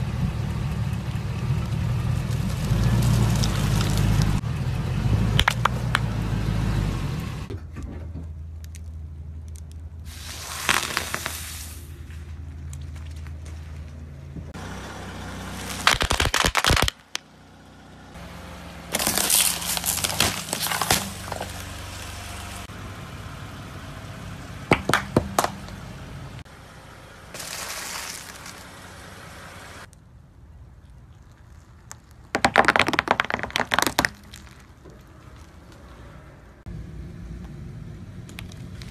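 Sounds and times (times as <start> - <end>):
car engine running low: 0.0 - 9.4, 17.0 - 29.9, 34.4 - 38.9
sharp double crack: 15.6 - 17.1
plastic bottle squashed: 15.8 - 17.0, 32.3 - 34.6
tyre crushing objects: 18.9 - 21.7, 32.2 - 35.5.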